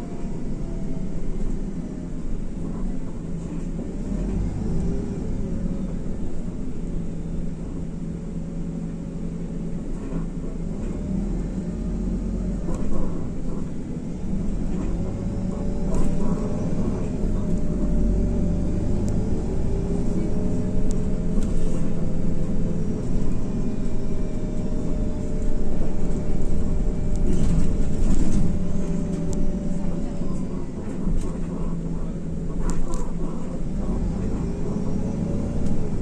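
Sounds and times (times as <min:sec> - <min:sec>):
bus engine rumble with whine: 0:00.0 - 0:36.0.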